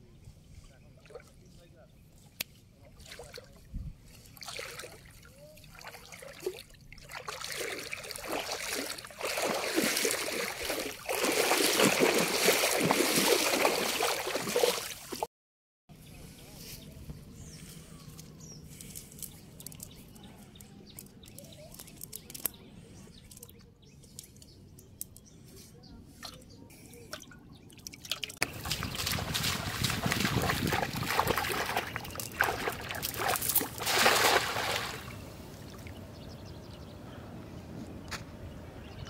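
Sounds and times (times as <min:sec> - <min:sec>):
fish splashing in water: 0:04.4 - 0:15.3, 0:27.1 - 0:35.9
water dripping: 0:27.1 - 0:35.1.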